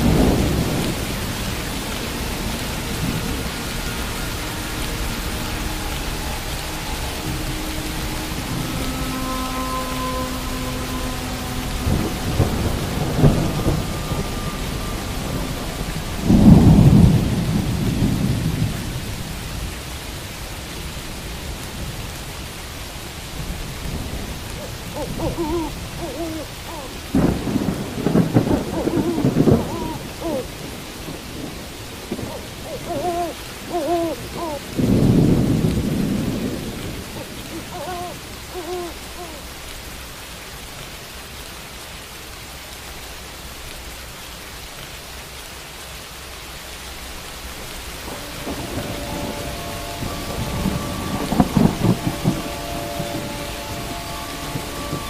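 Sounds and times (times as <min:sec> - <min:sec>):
thunder rolling: 0:00.0 - 0:04.2, 0:06.9 - 0:19.4, 0:23.4 - 0:38.7, 0:48.0 - 0:55.0
steady rain: 0:00.0 - 0:55.0
owl hooting: 0:24.6 - 0:27.0, 0:28.6 - 0:30.5, 0:32.2 - 0:34.7, 0:37.2 - 0:39.4.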